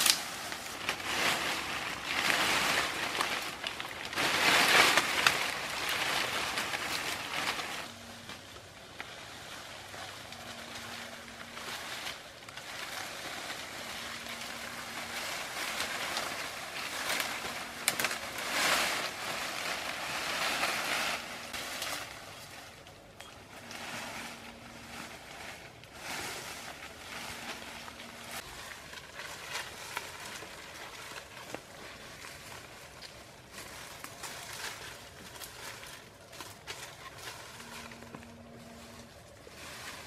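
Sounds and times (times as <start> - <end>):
branch cracking: 0.0 - 9.2, 10.3 - 22.9
leafy branches rustling: 0.0 - 40.0.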